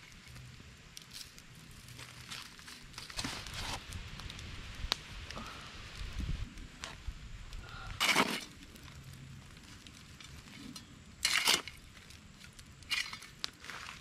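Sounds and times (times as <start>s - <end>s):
fire crackling faintly: 0.0s - 14.0s
shovel scraping into coals: 1.1s - 3.9s, 7.8s - 14.0s.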